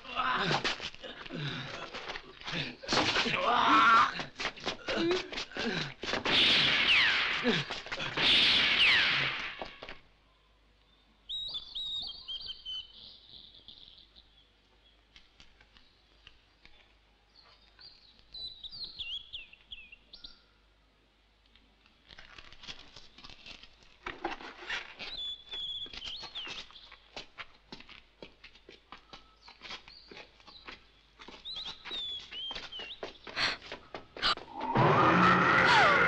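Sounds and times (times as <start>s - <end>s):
small bird chirping: 10.9s - 15.0s.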